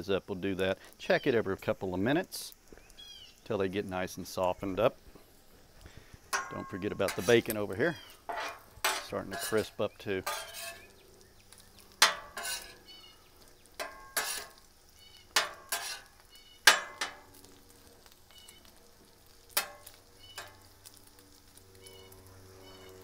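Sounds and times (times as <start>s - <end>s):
metal spatula scraping griddle: 6.3s - 11.0s, 11.9s - 14.7s, 15.3s - 17.3s, 19.5s - 20.7s.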